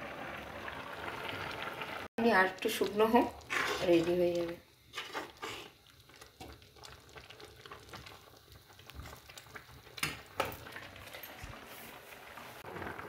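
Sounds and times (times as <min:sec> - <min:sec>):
food sizzling and bubbling: 0:00.0 - 0:13.0
metal spoon scraping a pan: 0:03.5 - 0:04.0.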